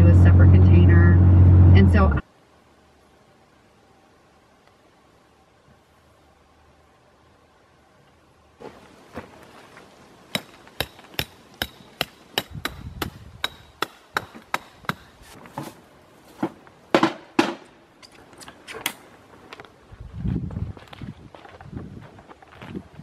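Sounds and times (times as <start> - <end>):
tent peg being hammered: 10.3 - 15.2, 16.9 - 17.7.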